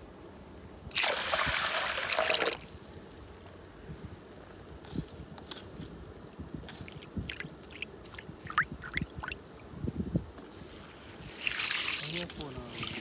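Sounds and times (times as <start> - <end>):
river water splashing: 11.3 - 13.0.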